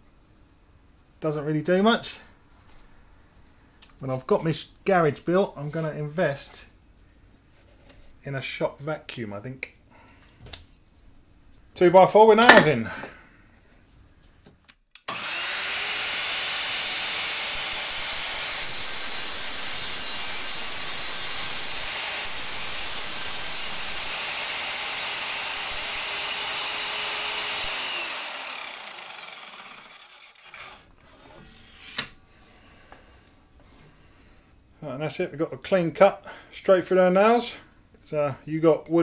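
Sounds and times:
saw blade winding down: 15.0s - 31.0s
mitre saw cutting wood: 15.1s - 32.1s.

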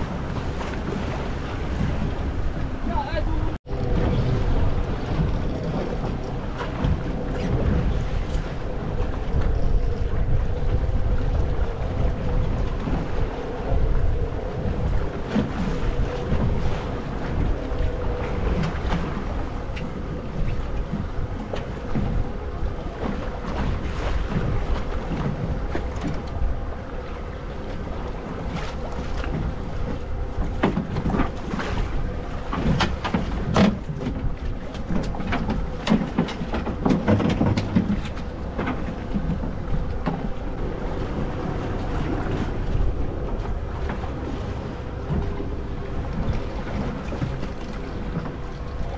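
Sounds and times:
water noise: 0.0s - 48.9s
wind buffeting microphone: 0.0s - 48.9s.

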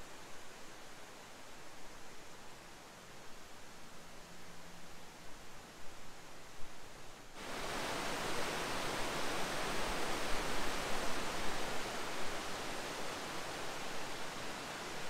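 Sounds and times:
waterfall rushing over rocks: 7.4s - 15.0s.

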